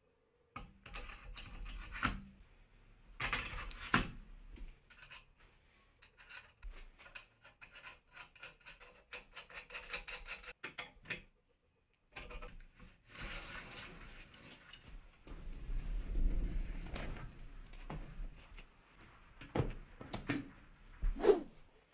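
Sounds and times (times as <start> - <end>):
rubbing and handling noise: 20.6 - 21.9.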